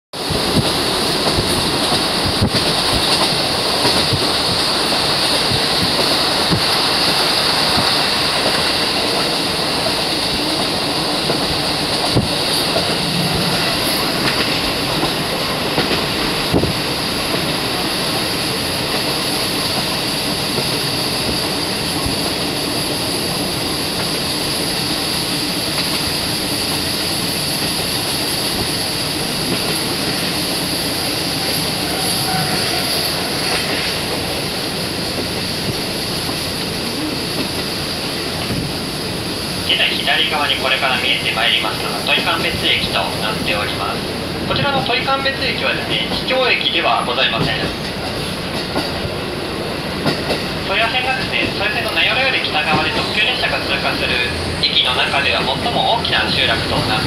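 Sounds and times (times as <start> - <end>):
wheels rumbling on rail: 0.1 - 57.0
sharp track clicks: 0.5 - 17.6, 49.9 - 54.0.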